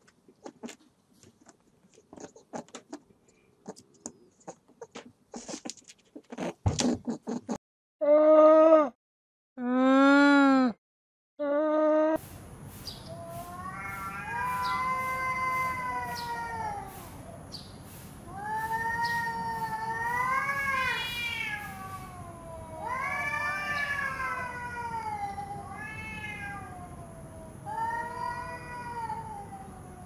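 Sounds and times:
cats yowling: 13.1s - 17.4s, 18.3s - 30.0s.

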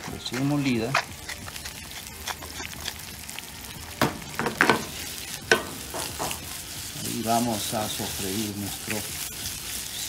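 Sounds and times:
onion sizzling in oil: 0.0s - 10.0s
pan knocking on burner: 4.0s - 6.5s.

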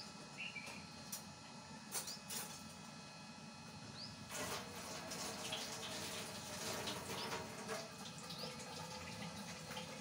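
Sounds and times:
milk boiling in a pot: 4.3s - 10.0s.

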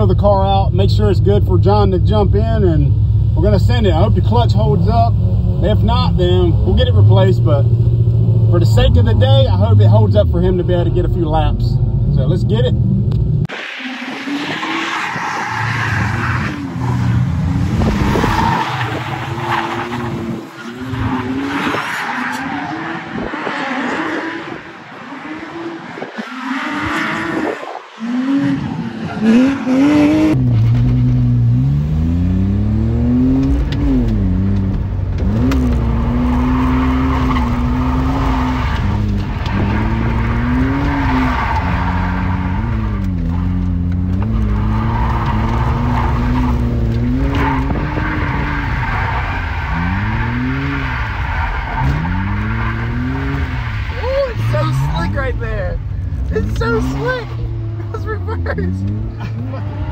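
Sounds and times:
car engine revving: 0.0s - 59.9s
tyres squealing: 35.8s - 55.6s.

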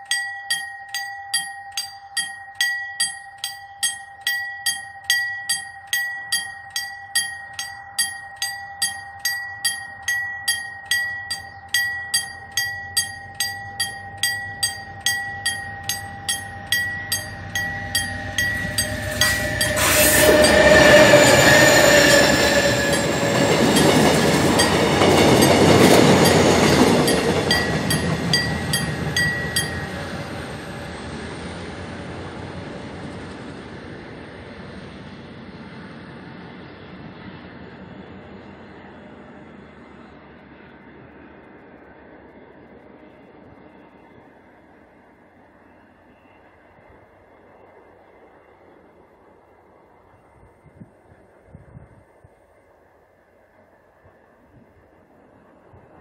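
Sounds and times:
level crossing bell dinging: 0.0s - 30.0s
train rumbling over crossing: 0.0s - 56.0s
train horn blast: 18.2s - 23.4s.

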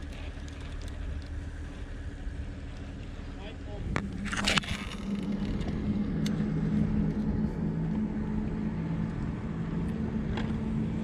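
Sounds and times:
faint clicks: 0.0s - 1.4s
constant rumble: 0.0s - 11.0s
motor humming: 0.0s - 11.0s.

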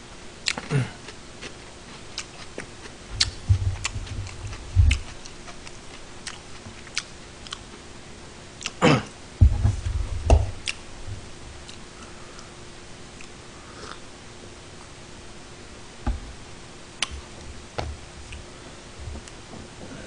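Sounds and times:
faint steady hum: 0.0s - 20.0s
dull low thumps: 3.1s - 5.2s, 9.4s - 11.4s, 16.0s - 16.6s.

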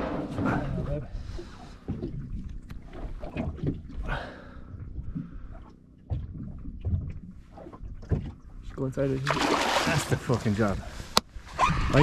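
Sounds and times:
gear knocking in a boat: 6.0s - 8.8s.

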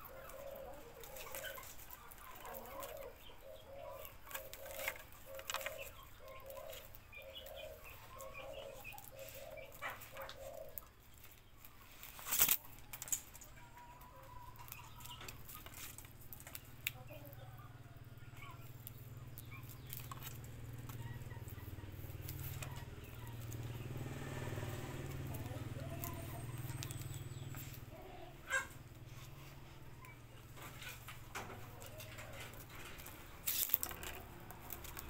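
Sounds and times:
faint bird calls: 0.0s - 11.0s
plastic strip clicking and rustling: 12.0s - 13.5s, 32.8s - 35.0s.

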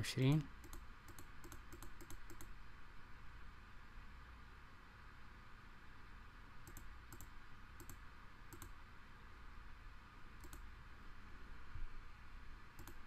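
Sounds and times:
faint steady hiss: 0.0s - 13.0s
computer mouse clicking: 0.6s - 2.6s, 6.6s - 8.8s, 10.4s - 10.7s, 12.8s - 13.0s.

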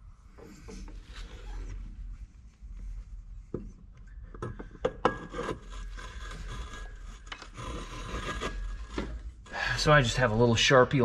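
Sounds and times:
gritty metal scraping: 5.2s - 10.5s.

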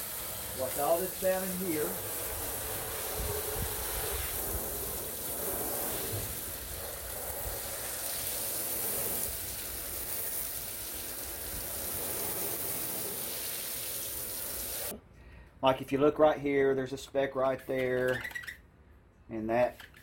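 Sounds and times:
hose nozzle spray hissing: 0.0s - 15.0s
spray spattering on deck: 0.0s - 15.0s.

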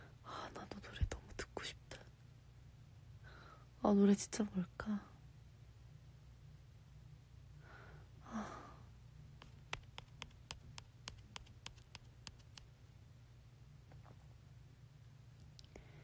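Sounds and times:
low steady hum: 0.0s - 16.0s
soft breathy sigh: 3.2s - 3.7s, 7.6s - 9.0s
faint sharp clicks: 9.4s - 12.7s.

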